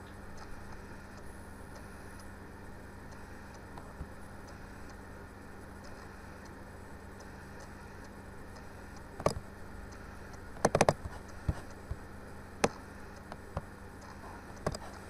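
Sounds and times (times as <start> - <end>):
low electrical hum: 0.0 - 15.0
computer mouse clicks: 5.8 - 6.6, 7.2 - 12.0, 12.6 - 15.0.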